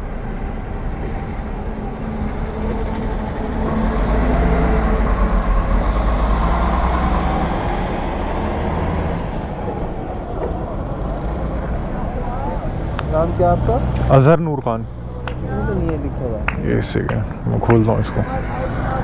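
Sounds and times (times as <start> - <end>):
heavy truck engine and tyre rumble: 0.0 - 19.0
road traffic passing: 0.0 - 19.0.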